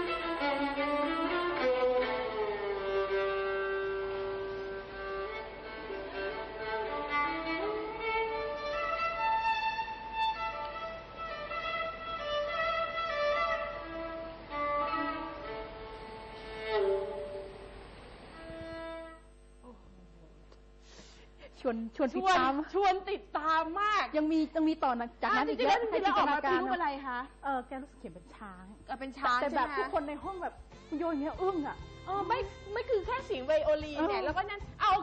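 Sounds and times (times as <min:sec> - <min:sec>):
solo violin slow melody: 0:00.0 - 0:19.4, 0:29.9 - 0:35.0.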